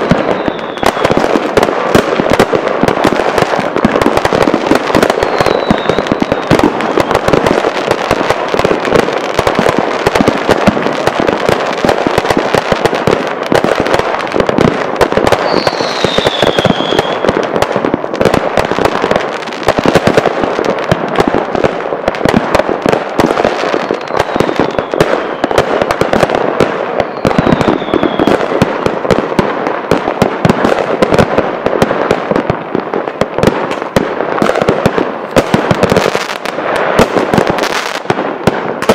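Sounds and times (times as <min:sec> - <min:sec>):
falling firework whistles: 0:00.0 - 0:01.2, 0:05.0 - 0:07.4, 0:15.3 - 0:17.4, 0:23.7 - 0:26.0, 0:27.0 - 0:28.4
fireworks bangs and crackling: 0:00.0 - 0:38.9.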